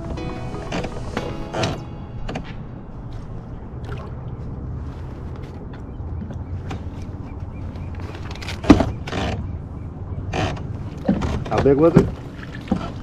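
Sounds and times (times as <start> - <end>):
low handling rumble: 0.0 - 8.6.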